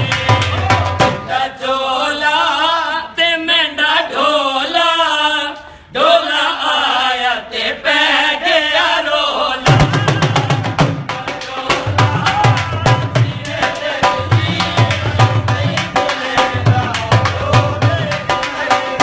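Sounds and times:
drum strokes: 0:09.6 - 0:19.0.

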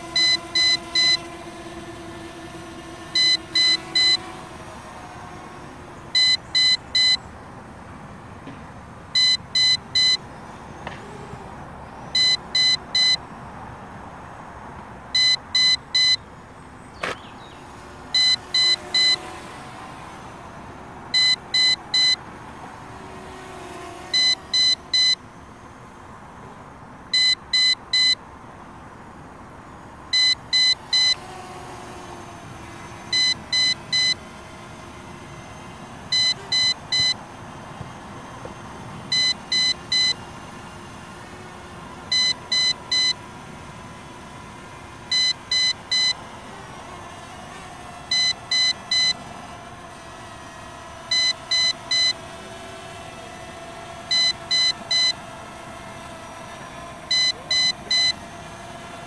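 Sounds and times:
short high beeps: 0:00.2 - 0:01.2, 0:06.2 - 0:07.2, 0:09.2 - 0:10.2, 0:12.2 - 0:13.2, 0:15.2 - 0:16.2, 0:18.2 - 0:19.2, 0:30.2 - 0:31.2, 0:36.1 - 0:37.2, 0:54.1 - 0:55.2, 0:57.1 - 0:58.2
sharp click: 0:17.0 - 0:17.3.

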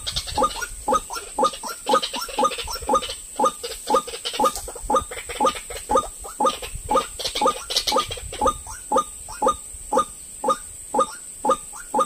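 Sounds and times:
bird croaking call: 0:00.0 - 0:12.0.

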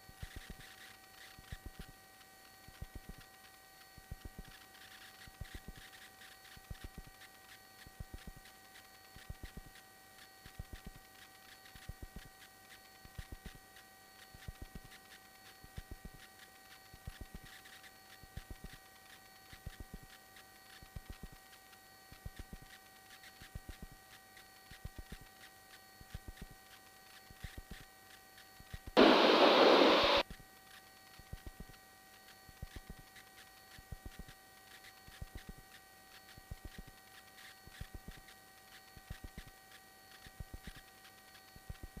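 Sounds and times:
burst of radio static: 0:29.0 - 0:30.2
clicking interference: 0:29.0 - 0:30.2
faint hiss and hum: 0:29.0 - 0:30.2.

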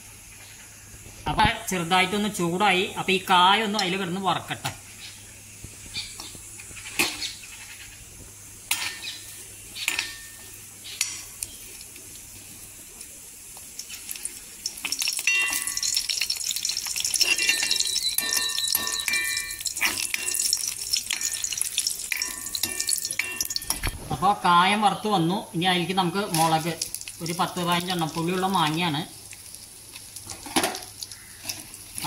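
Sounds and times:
crackling sizzle of frying: 0:00.0 - 0:32.0
ladle clinking and scraping on pan: 0:08.7 - 0:11.4, 0:15.2 - 0:23.8.

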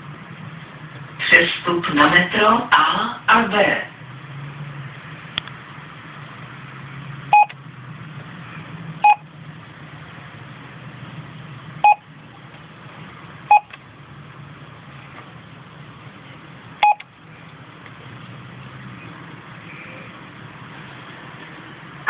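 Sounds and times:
steady low hum: 0:00.0 - 0:22.0
two-tone keypad beeps: 0:07.3 - 0:07.5, 0:09.0 - 0:09.2, 0:11.8 - 0:12.0, 0:13.5 - 0:13.7, 0:16.8 - 0:17.0.

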